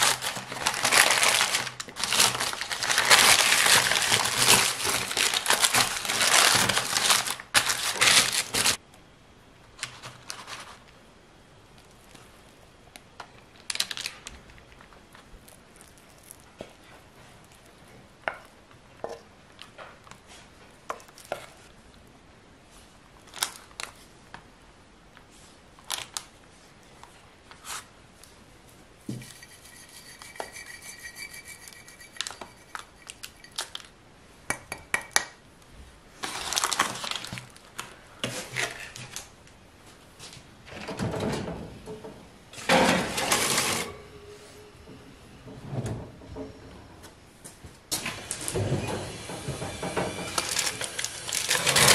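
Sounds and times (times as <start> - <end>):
baking parchment crinkling: 0.0 - 8.8, 9.8 - 11.0, 11.8 - 18.4, 36.2 - 39.3, 50.4 - 51.9.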